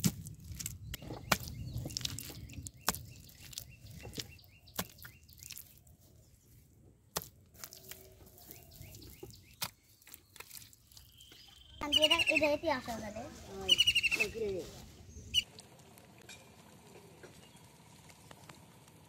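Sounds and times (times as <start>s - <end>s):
wet mud slapping: 0.0s - 5.9s, 7.1s - 11.3s.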